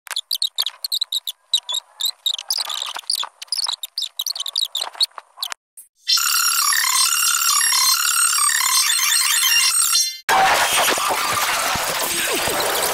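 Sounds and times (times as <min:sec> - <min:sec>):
sped-up squeaky chatter: 0:00.1 - 0:05.6.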